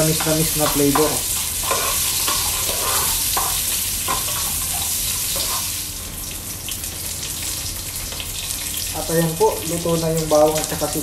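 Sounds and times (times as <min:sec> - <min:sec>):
spatula scraping and stirring: 0:00.0 - 0:05.8
onions sizzling in hot oil: 0:00.0 - 0:11.0.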